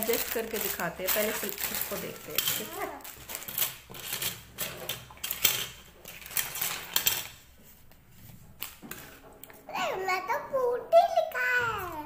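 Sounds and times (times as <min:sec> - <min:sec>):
plastic toy parts clattering on wood: 0:00.0 - 0:07.4
plastic bag rustling: 0:00.0 - 0:09.2.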